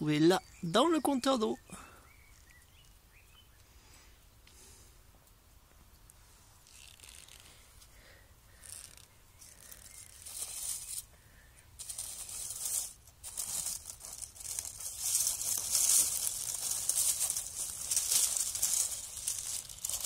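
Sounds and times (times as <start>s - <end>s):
dry leaves rustling and crackling: 8.6s - 11.1s, 11.8s - 20.0s.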